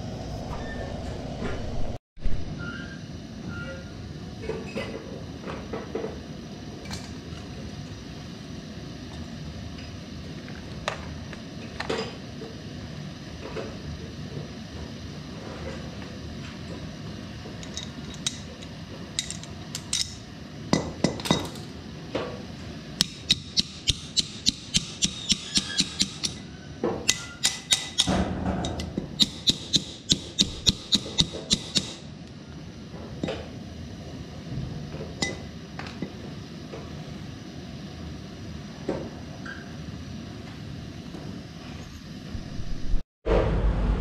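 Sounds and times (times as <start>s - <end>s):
hammer striking steel: 23.0s - 26.4s, 27.1s - 32.0s.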